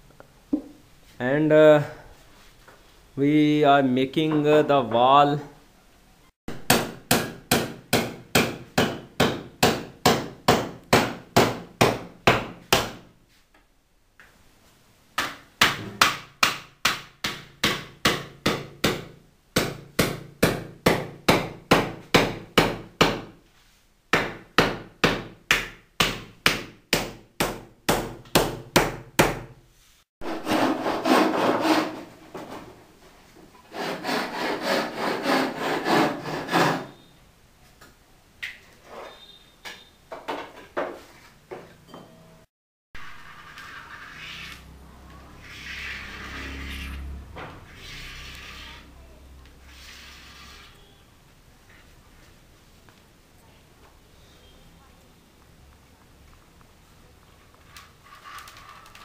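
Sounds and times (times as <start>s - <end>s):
rough scraping: 43.0s - 49.0s, 49.6s - 51.0s.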